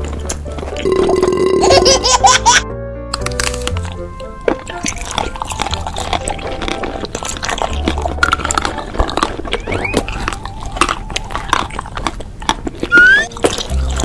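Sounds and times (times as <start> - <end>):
crisp chewing crunches: 3.1 - 14.0
mouth clicks: 4.7 - 14.0
short rising squeaks: 9.6 - 10.2, 12.9 - 13.3.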